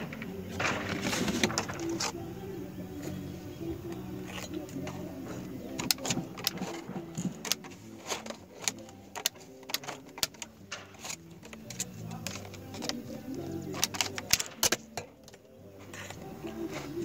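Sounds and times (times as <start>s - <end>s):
tin snips cutting plastic panel: 5.7s - 15.4s.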